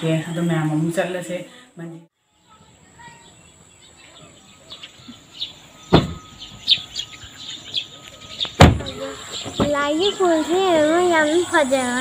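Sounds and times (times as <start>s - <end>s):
faint bird chirps: 2.2s - 11.4s.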